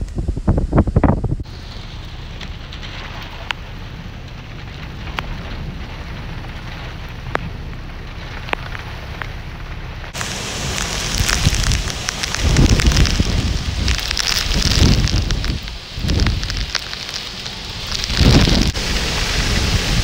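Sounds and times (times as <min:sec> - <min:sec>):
wind rushing: 0:00.0 - 0:01.5, 0:10.1 - 0:20.0
heavy wind-driven rain: 0:00.0 - 0:20.0.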